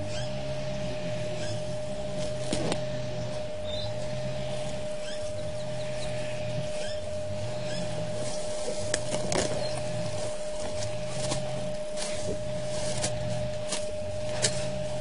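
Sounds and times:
electrical hum: 0.0s - 15.0s
grass being pulled and torn: 2.0s - 5.4s, 6.0s - 15.0s.

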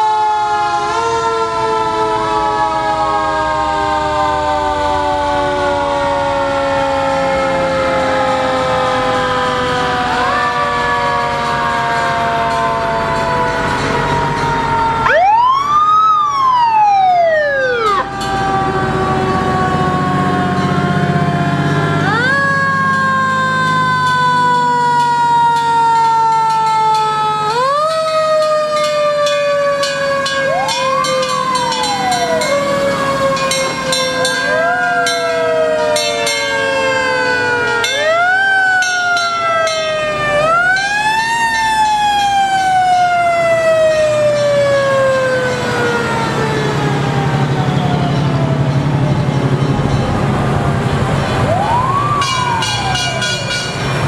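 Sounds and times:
mechanical sirens wailing: 0.0s - 54.0s
truck engines rumbling: 0.0s - 54.0s.

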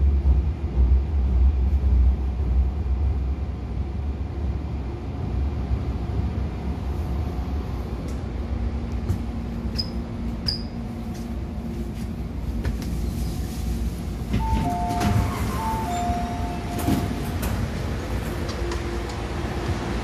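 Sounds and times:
low rumble inside train car: 0.0s - 20.0s
two-note electronic door chime: 14.4s - 16.9s.

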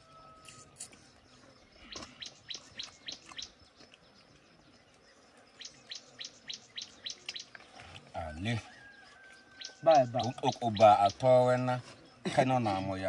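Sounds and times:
faint outdoor background: 0.0s - 13.0s
bird chirping rapidly: 1.4s - 3.7s, 5.5s - 7.6s, 9.5s - 11.8s.

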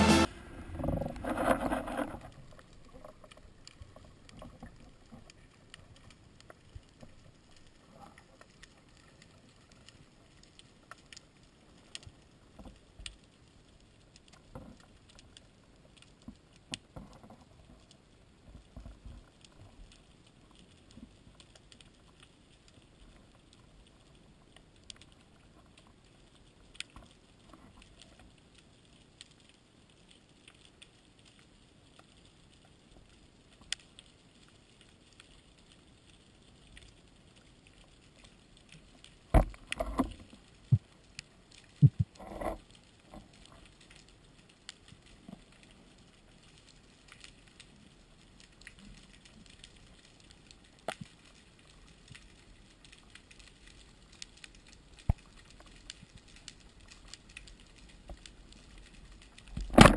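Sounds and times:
low underwater hiss: 0.0s - 29.7s
sharp clicks and crackles: 0.8s - 59.9s.

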